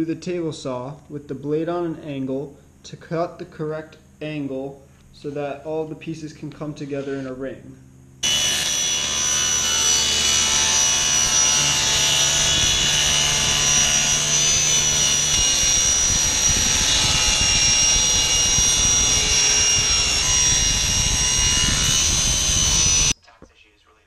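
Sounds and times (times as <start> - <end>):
table saw cutting wood: 8.2 - 23.2.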